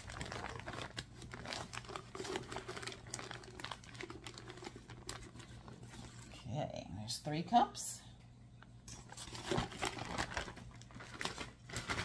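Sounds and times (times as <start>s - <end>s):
plastic bag crinkling: 0.0s - 6.3s, 9.0s - 12.0s.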